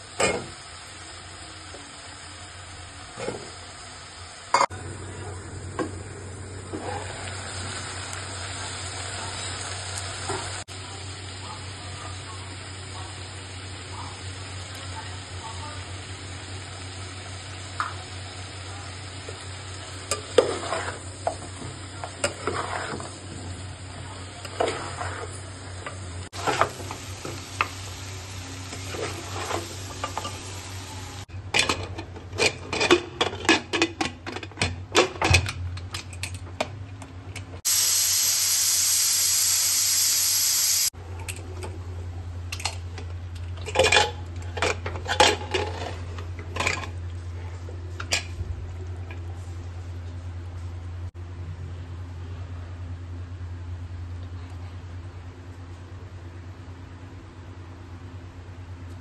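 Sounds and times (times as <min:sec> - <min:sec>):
curry sizzling: 0:00.0 - 0:31.7, 0:37.6 - 0:41.0
steam hissing from pressure cooker: 0:05.8 - 0:31.3, 0:37.6 - 0:41.0
spatula scraping a metal pot: 0:20.1 - 0:21.1, 0:22.1 - 0:23.2, 0:24.4 - 0:25.4, 0:26.4 - 0:26.9, 0:28.7 - 0:30.4.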